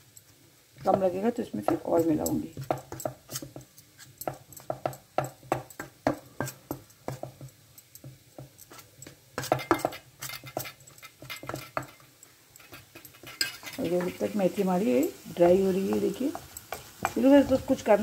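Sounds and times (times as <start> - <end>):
metal spoon scraping a metal plate: 8.7 - 12.0, 12.6 - 14.2.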